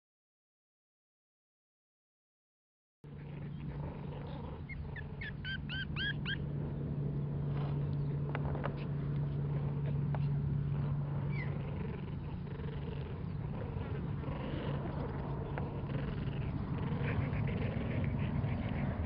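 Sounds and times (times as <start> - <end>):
puppies whimpering: 3.1 - 6.5, 8.0 - 19.0
low hum: 3.1 - 19.0.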